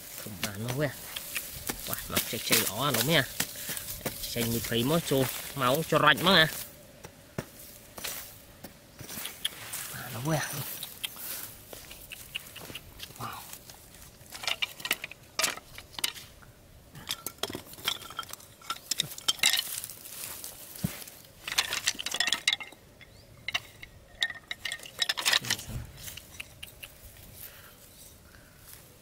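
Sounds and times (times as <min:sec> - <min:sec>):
bamboo sticks clacking: 0:00.1 - 0:07.2, 0:10.7 - 0:16.3, 0:17.0 - 0:27.3.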